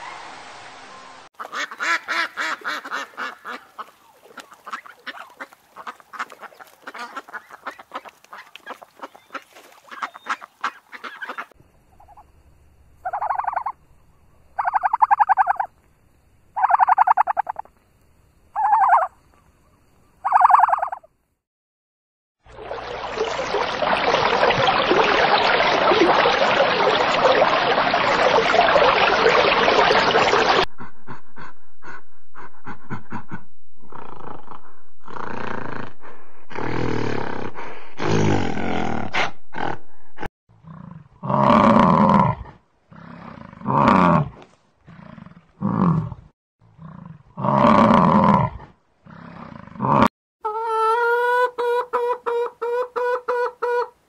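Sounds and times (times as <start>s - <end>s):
hens clucking: 1.4s - 12.2s, 13.0s - 13.8s, 14.6s - 15.7s, 16.6s - 17.7s, 20.2s - 21.0s, 50.5s - 54.0s.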